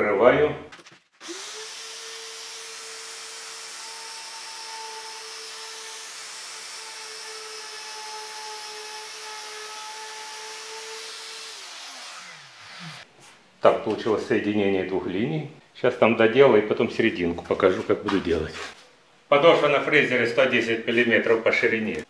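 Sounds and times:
router whining while cutting wood: 1.2s - 13.1s.

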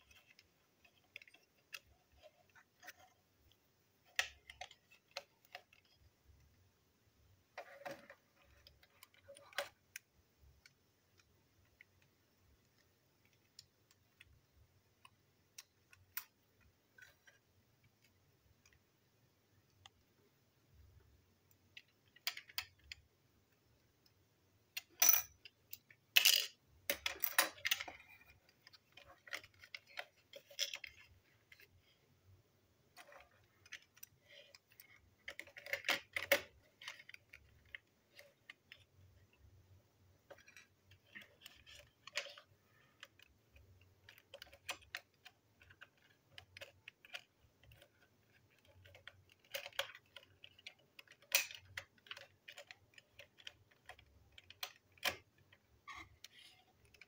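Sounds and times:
plastic toy parts clicking: 0.0s - 6.5s, 21.5s - 23.1s, 24.8s - 31.8s, 32.9s - 39.4s, 40.2s - 57.0s.

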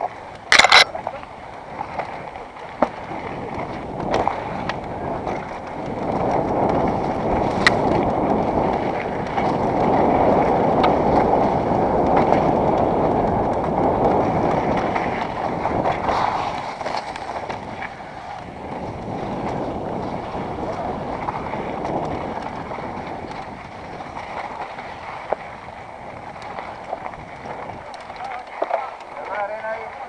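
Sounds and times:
bike clicks and knocks: 0.0s - 1.2s, 2.8s - 17.9s, 26.3s - 29.4s
bike tyre noise on dirt: 0.0s - 30.0s
wind rushing on microphone: 0.0s - 30.0s.

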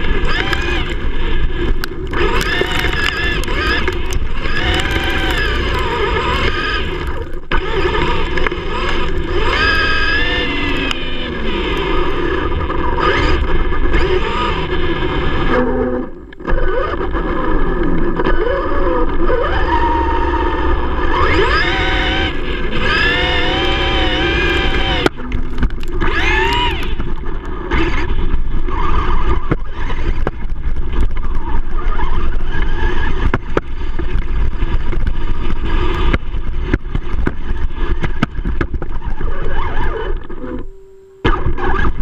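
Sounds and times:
tyres crunching over gravel: 0.0s - 12.4s
electric motor whine: 0.0s - 42.0s.

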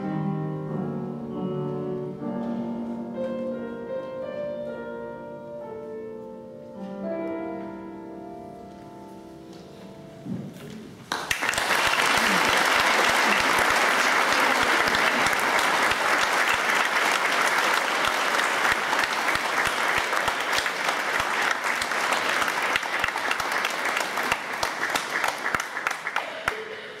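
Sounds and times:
audience clapping: 11.1s - 27.0s.

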